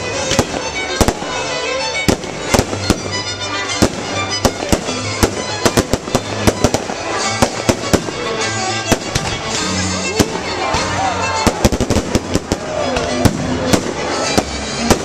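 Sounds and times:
fireworks bangs and crackles: 0.0 - 1.4, 2.0 - 15.0
music playing: 0.0 - 15.0.

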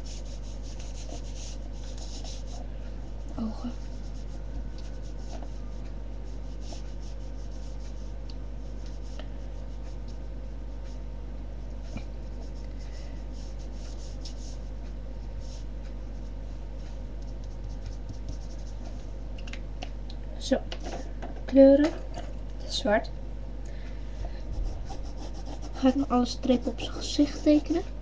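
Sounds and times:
pen scratching on paper: 0.0 - 2.6, 17.2 - 18.9, 24.5 - 27.9
low hum: 0.0 - 20.4, 21.1 - 28.0.

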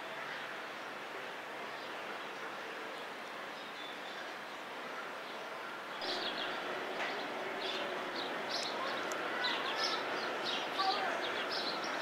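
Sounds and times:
steady background noise: 0.0 - 12.0
small birds chirping: 5.3 - 12.0.

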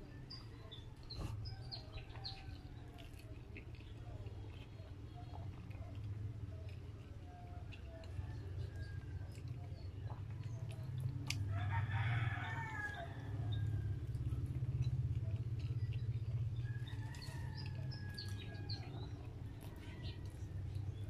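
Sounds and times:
low steady hum: 0.0 - 21.0
clicks of eating fries: 1.9 - 11.5.

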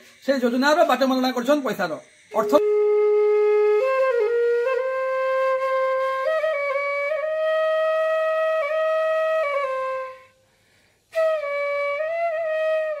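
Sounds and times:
solo flute long notes: 2.4 - 10.4, 11.1 - 13.0.

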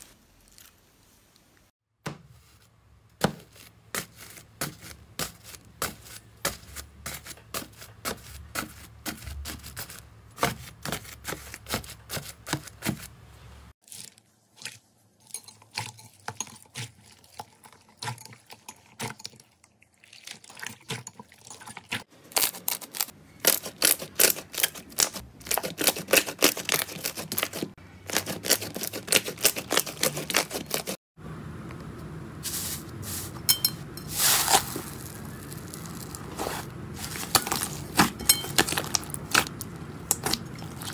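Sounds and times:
rake scraping through foam beads: 3.4 - 13.1, 32.4 - 38.2.

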